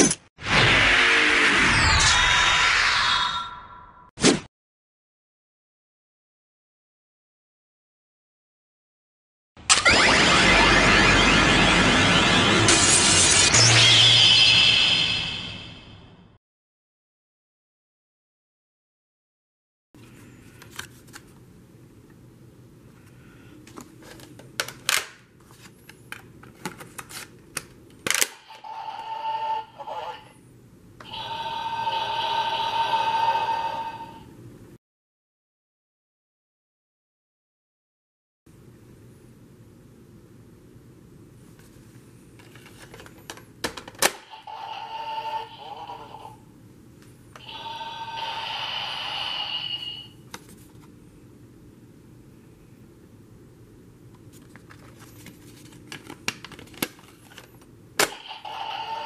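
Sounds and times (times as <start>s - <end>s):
toy electronic tone: 28.5s - 30.3s, 31.0s - 34.3s, 44.3s - 46.4s, 47.4s - 50.2s, 58.2s - 59.0s
voice from small speaker: 29.4s - 30.4s.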